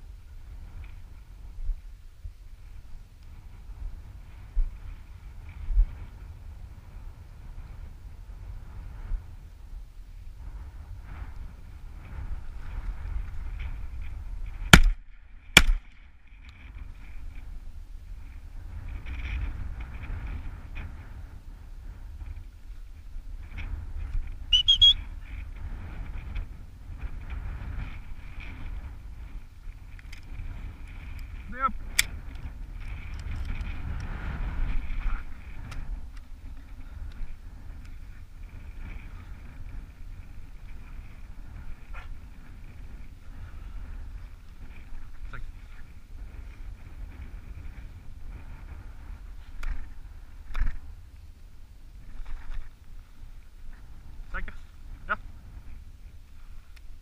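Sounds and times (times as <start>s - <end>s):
wind rumble on microphone: 0.0s - 57.0s
high whistled pips: 24.5s - 25.0s.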